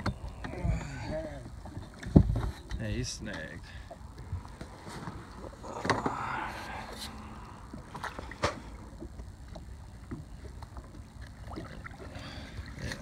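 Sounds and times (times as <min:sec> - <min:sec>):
water lapping: 0:03.5 - 0:13.0.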